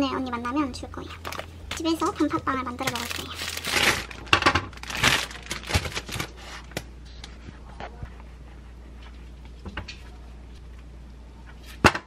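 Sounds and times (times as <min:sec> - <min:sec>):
plastic bag crinkling: 0:02.8 - 0:06.8.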